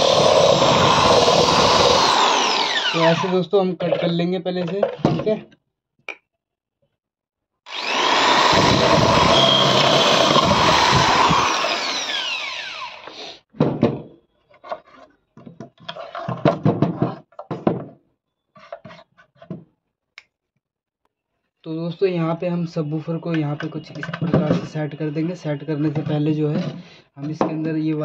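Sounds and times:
electric drill whining: 0:00.0 - 0:03.4, 0:07.7 - 0:13.4
wood knocks and scrapes: 0:13.5 - 0:19.8.

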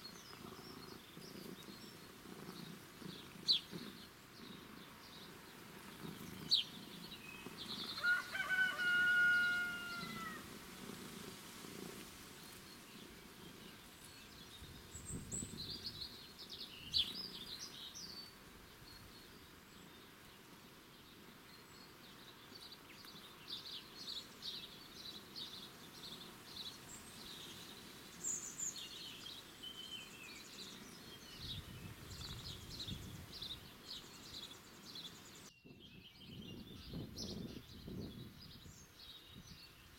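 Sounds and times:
faint outdoor background: 0:00.0 - 0:39.9
songbirds chirping: 0:00.0 - 0:39.9
long drawn-out bird call: 0:07.9 - 0:10.5.

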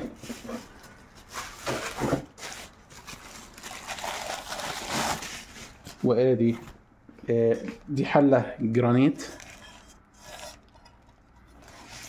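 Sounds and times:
plastic wrapping rustling: 0:00.0 - 0:06.8
handling noises: 0:00.0 - 0:07.9.

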